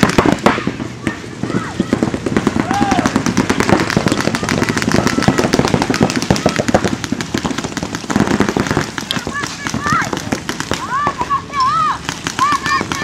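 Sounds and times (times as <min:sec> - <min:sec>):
paintball markers firing: 0:00.0 - 0:13.0.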